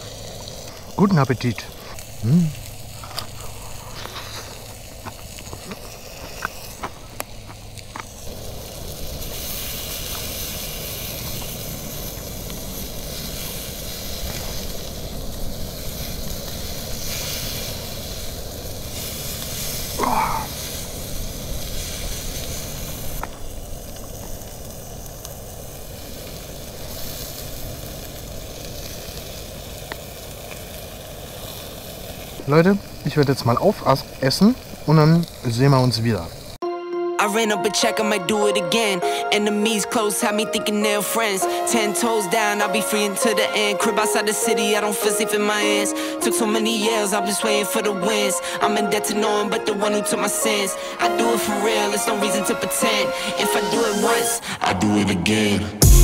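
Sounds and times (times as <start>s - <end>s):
food sizzling on a grill: 0.0s - 36.6s, 38.0s - 56.0s.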